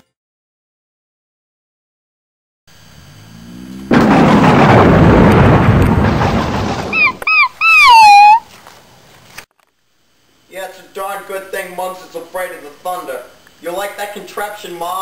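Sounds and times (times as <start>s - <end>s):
thunder rumbling: 3.8s - 7.9s
dog yelping: 6.9s - 8.5s.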